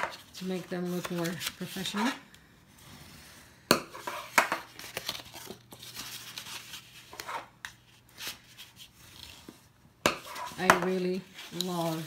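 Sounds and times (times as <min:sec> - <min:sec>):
card rustling: 0:00.1 - 0:02.2, 0:04.1 - 0:09.6.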